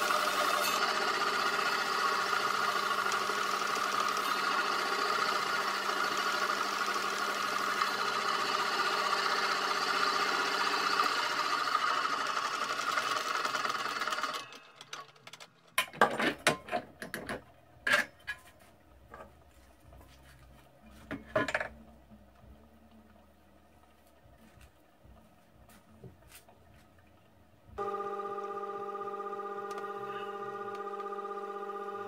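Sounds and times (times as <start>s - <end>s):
lathe whirring and hissing: 0.0s - 14.9s.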